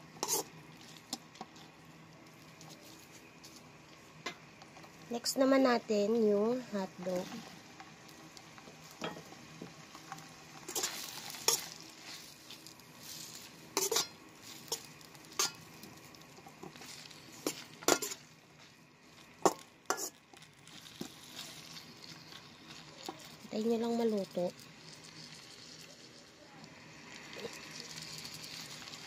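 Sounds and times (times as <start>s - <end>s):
meat sizzling in a pan: 0.0s - 29.0s
utensil scraping and knocking pan: 13.8s - 15.6s.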